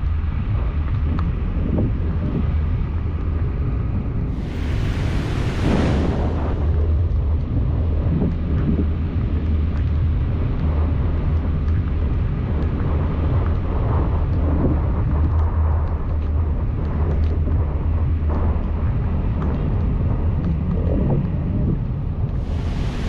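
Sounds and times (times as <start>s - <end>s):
car engine and tyres rumbling: 0.0s - 23.0s
raindrops ticking: 6.8s - 22.8s.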